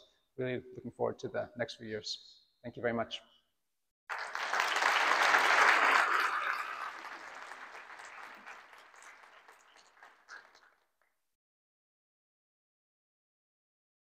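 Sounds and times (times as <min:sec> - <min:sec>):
audience applauding: 0:04.1 - 0:10.8.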